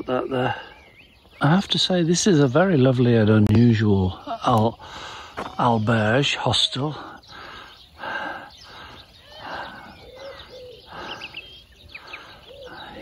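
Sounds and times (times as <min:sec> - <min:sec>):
small high bird chirps: 0:05.4 - 0:13.0
dove cooing: 0:06.7 - 0:13.0.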